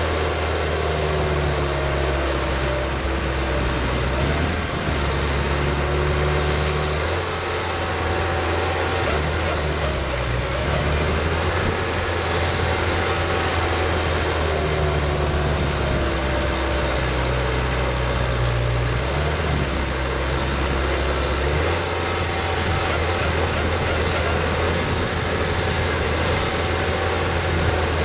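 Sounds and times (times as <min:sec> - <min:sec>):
engine drone: 0:00.0 - 0:28.0
auger whine: 0:00.1 - 0:28.0.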